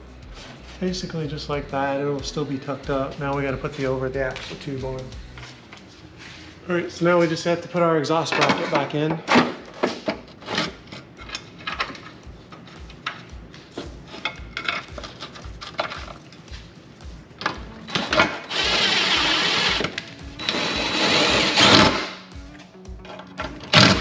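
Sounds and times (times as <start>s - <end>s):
power driver running a bolt in: 17.4s - 22.2s.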